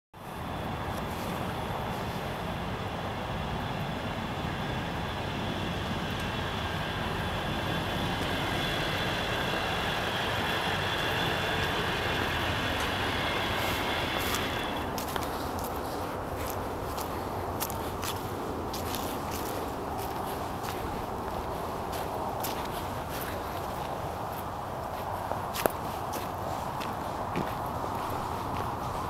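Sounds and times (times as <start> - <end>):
thin high whine: 0.2 - 15.6
truck engine idling: 0.3 - 25.1.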